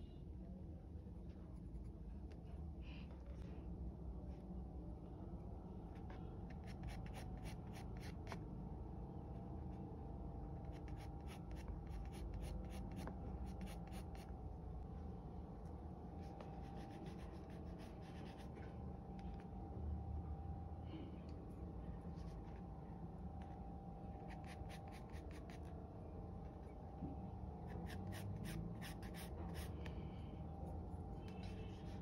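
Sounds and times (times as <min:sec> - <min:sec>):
low room hum: 0:00.0 - 0:32.0
pencil scratching on paper: 0:06.5 - 0:08.4, 0:10.6 - 0:14.3, 0:16.4 - 0:18.7, 0:24.3 - 0:25.7, 0:27.7 - 0:29.7.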